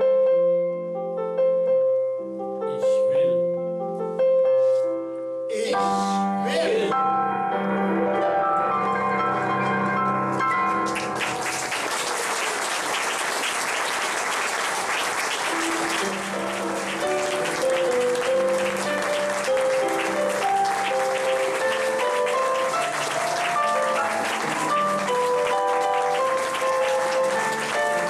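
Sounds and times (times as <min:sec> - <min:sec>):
instrumental music with held notes: 0:00.0 - 0:11.6, 0:15.4 - 0:28.0
audience applauding: 0:10.8 - 0:28.0.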